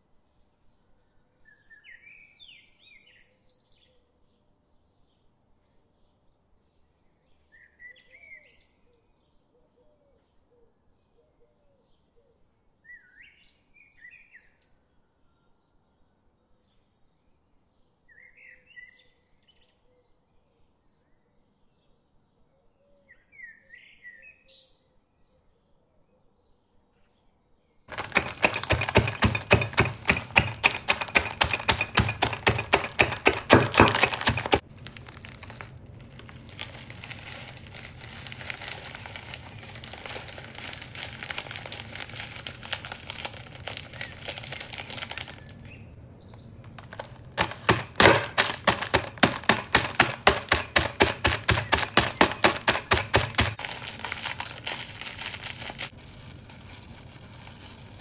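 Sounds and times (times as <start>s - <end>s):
rolling pin pounding: 27.9s - 45.7s, 46.4s - 55.9s
plastic wrapper crinkling: 27.9s - 58.0s.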